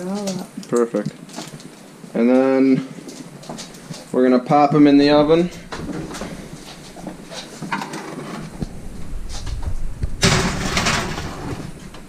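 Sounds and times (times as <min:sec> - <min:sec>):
oven door clicks and knocks: 0:10.2 - 0:12.0.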